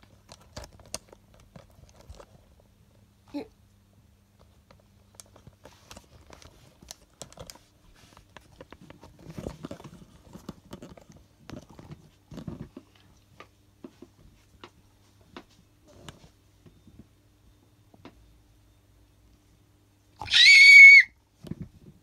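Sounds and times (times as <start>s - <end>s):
handling clicks and rustles: 0.0s - 3.0s, 4.4s - 16.2s.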